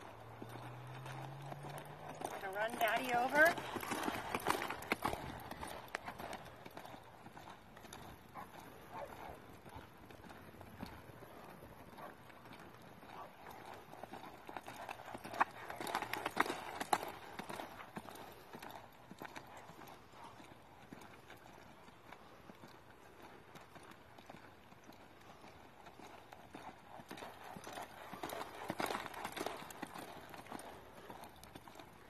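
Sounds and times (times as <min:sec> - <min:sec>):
horse hoofbeats on dirt: 0:00.0 - 0:32.0.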